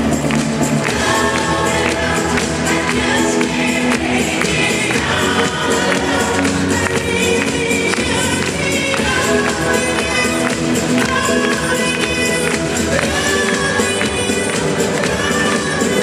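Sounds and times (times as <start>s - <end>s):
disco music with singing: 0.0s - 16.0s.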